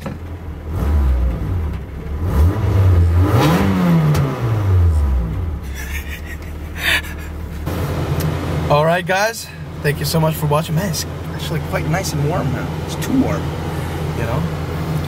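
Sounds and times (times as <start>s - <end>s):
car engine revving: 0.6s - 9.1s.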